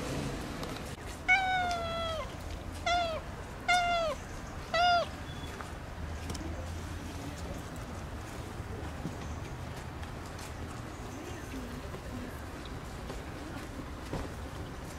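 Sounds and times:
cat meowing: 1.3 - 5.3.

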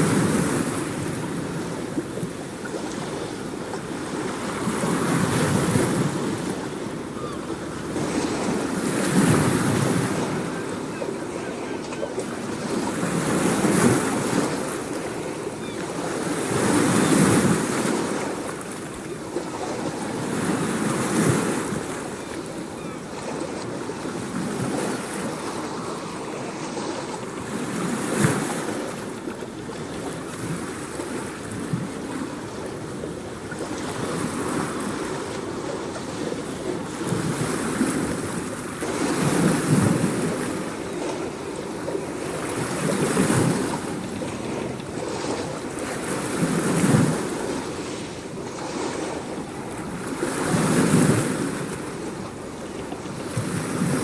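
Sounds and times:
ocean waves breaking: 0.0 - 54.0.

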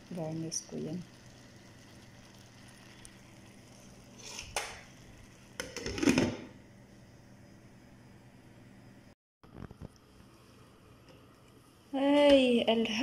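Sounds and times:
faint steady hiss: 0.0 - 5.6.

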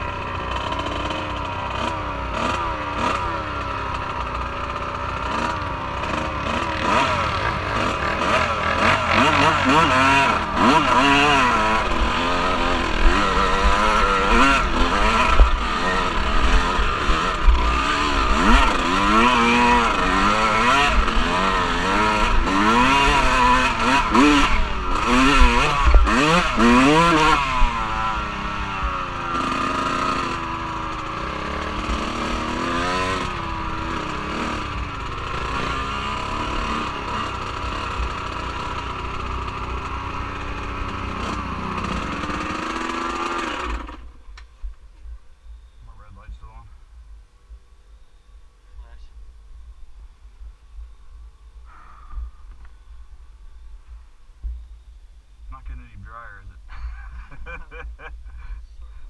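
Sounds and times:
off-road vehicle engine revving: 0.0 - 44.2.

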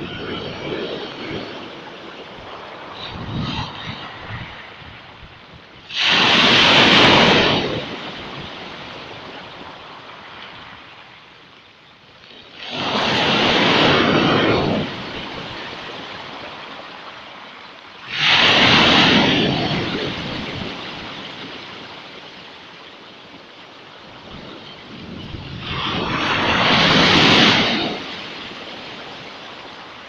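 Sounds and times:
waves crashing on pebbles: 5.9 - 11.1, 12.4 - 22.5, 24.0 - 30.0.

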